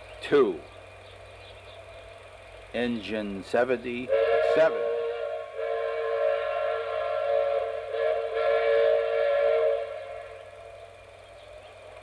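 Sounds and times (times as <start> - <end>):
train whistle blast: 4.1 - 10.8.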